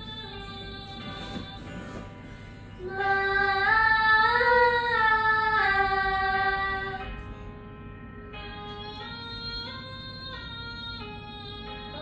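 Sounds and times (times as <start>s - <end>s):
woman singing vocal warm-up: 2.7s - 7.4s.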